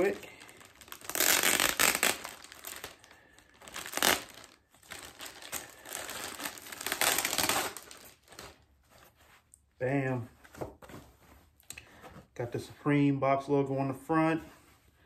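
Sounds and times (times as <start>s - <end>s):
plastic bag crinkling and tearing: 0.0s - 8.6s.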